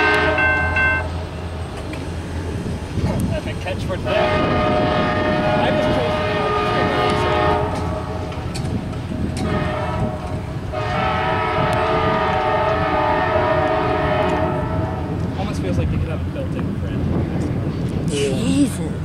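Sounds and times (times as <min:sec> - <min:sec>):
train air horn blasts: 0:00.0 - 0:01.2, 0:04.0 - 0:08.4, 0:09.4 - 0:15.1
rumble of rolling train: 0:00.0 - 0:19.0.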